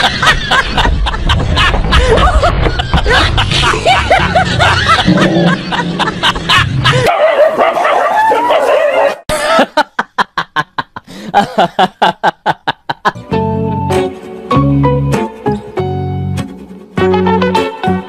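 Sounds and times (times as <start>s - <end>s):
person chuckling: 0.1s - 7.1s, 9.3s - 13.2s
dog barking: 7.0s - 9.2s.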